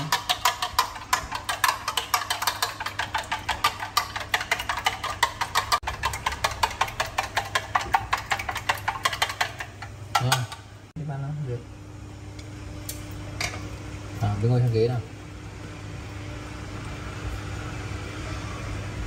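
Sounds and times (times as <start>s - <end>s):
chopsticks tapping metal tin: 0.0s - 10.6s.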